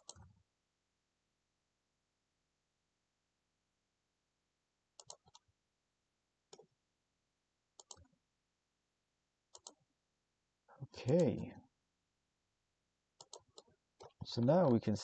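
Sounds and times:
faint mouse and keyboard clicks: 0:00.0 - 0:00.4, 0:05.0 - 0:05.5, 0:06.5 - 0:06.7, 0:07.8 - 0:08.2, 0:09.5 - 0:09.8, 0:13.2 - 0:14.9.

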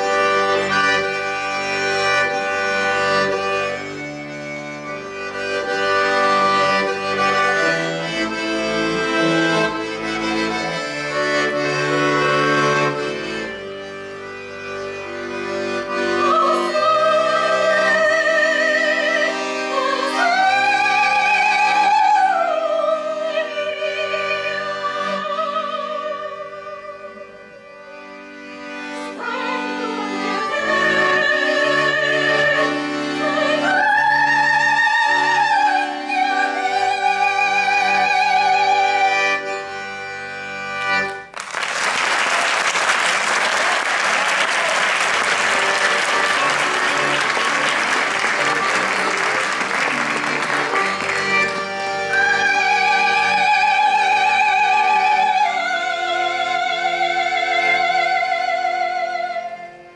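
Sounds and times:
accordion playing chords: 0:00.0 - 0:59.9
woman singing operatically: 0:16.2 - 0:27.1, 0:33.2 - 0:38.5.

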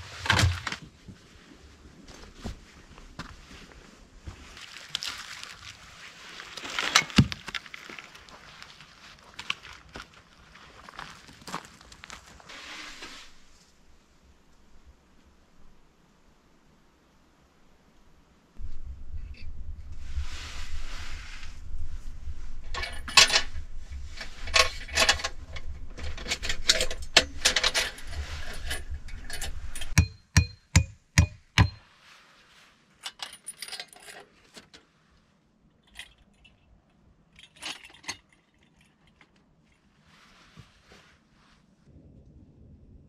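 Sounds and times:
low rumble: 0:18.6 - 0:30.0, 0:41.9 - 0:43.0.

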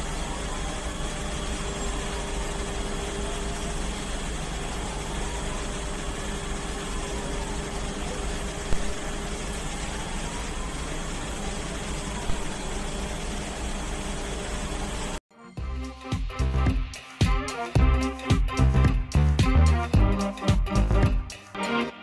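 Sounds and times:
fire engine idling: 0:00.0 - 0:15.2.

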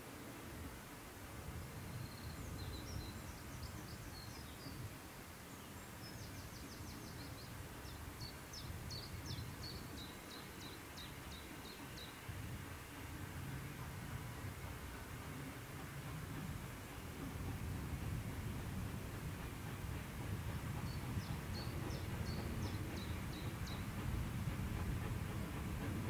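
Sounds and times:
songbird chirping: 0:19.9 - 0:24.0.

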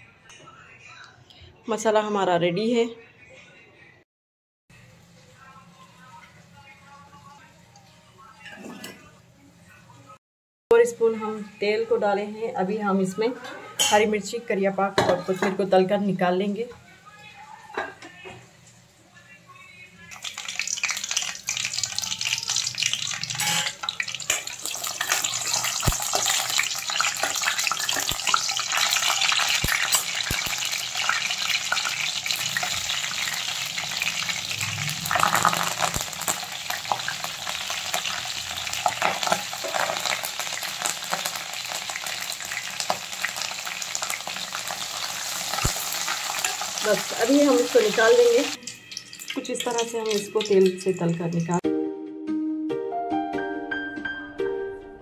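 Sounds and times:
food sizzling in hot oil: 0:20.1 - 0:51.6
metal spatula stirring in pan: 0:20.5 - 0:32.7.

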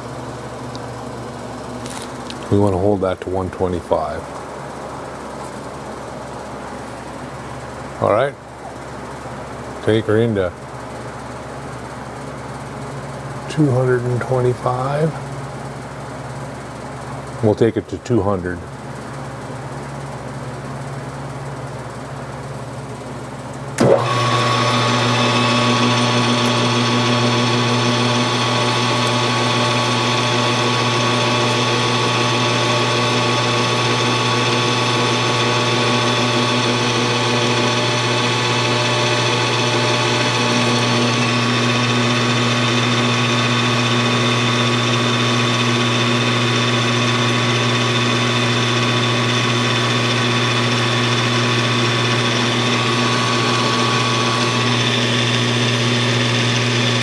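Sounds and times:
metal lathe whining: 0:23.8 - 0:57.0.

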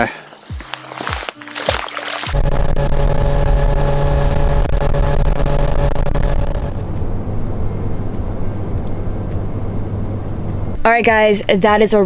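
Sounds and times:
outboard motor running: 0:00.3 - 0:09.0
wind and water rushing: 0:00.5 - 0:02.4
low outdoor rumble: 0:02.4 - 0:12.0.

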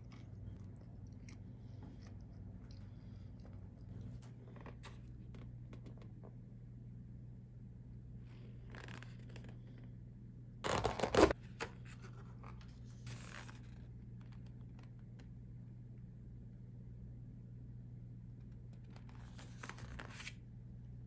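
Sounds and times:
tape seal tearing: 0:10.6 - 0:11.4.

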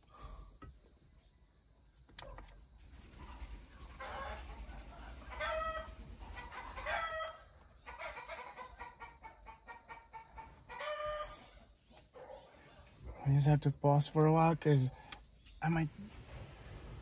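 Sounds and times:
chicken calling: 0:03.3 - 0:12.3.

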